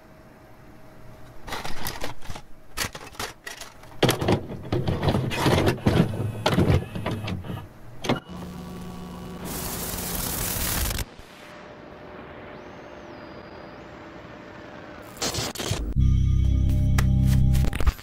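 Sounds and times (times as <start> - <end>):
mechanical clicks and clunks: 1.5 - 8.3
tape static hiss: 6.2 - 18.0.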